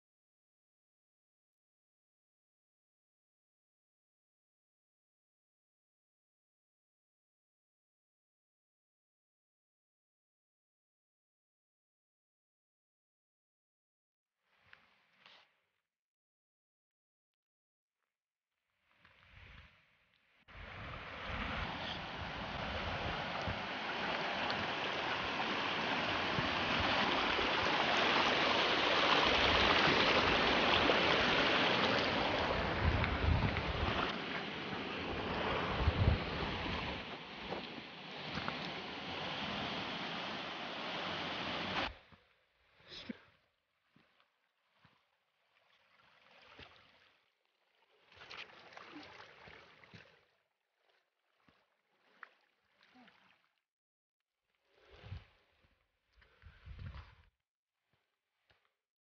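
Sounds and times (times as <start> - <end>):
faint water splashing: 20.6 - 53.6, 54.5 - 57.3
stream running over rocks: 20.8 - 41.9
footsteps on wet gravel: 29.7 - 39.8.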